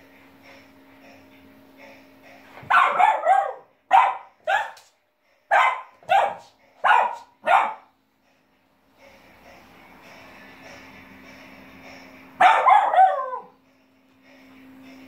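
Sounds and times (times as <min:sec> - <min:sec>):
puppy barking: 0:02.7 - 0:04.9, 0:05.5 - 0:07.9, 0:12.4 - 0:13.5.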